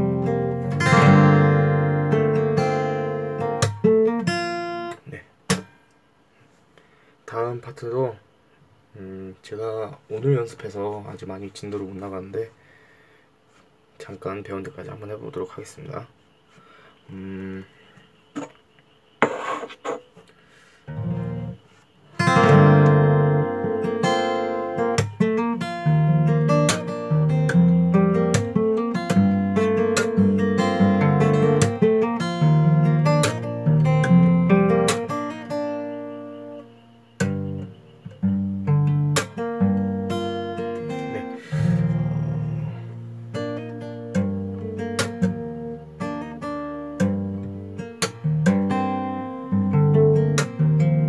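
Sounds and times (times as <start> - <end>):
fingerstyle acoustic guitar: 0.0 - 5.8, 20.9 - 51.0
percussive hits on guitar: 5.5 - 5.8, 45.0 - 45.4, 48.0 - 48.6, 50.4 - 50.6.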